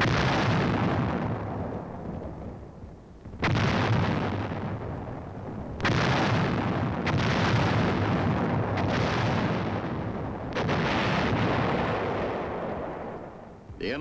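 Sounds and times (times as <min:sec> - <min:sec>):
artillery booms: 0:00.0 - 0:14.0.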